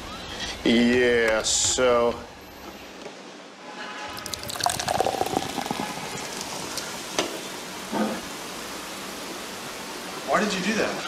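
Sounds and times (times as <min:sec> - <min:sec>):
soda splashing and fizzing: 0:04.1 - 0:07.2.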